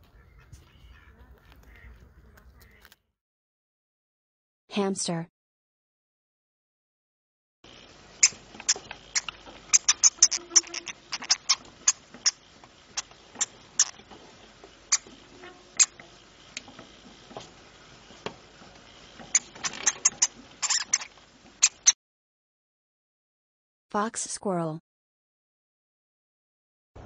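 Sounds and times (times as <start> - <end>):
hamster clicks and squeaks: 7.7 - 22.0.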